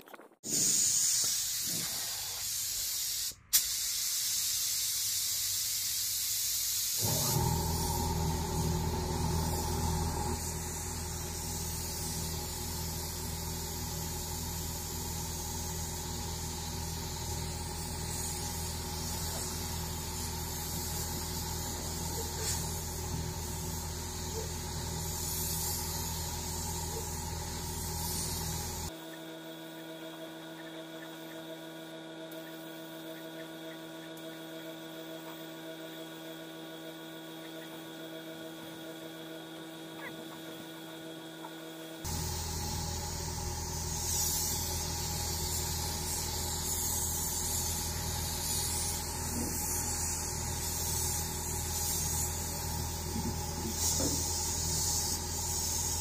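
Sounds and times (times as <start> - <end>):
pneumatic sander on steel: 0.4 - 29.0, 42.0 - 56.0
spray gun hissing: 0.5 - 29.0, 42.0 - 56.0
steady machine hum: 7.0 - 56.0.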